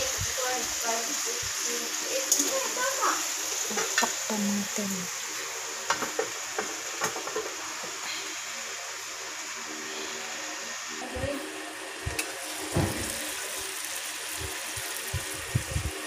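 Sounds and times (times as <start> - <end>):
chicken sizzling in grill pan: 0.0 - 16.0.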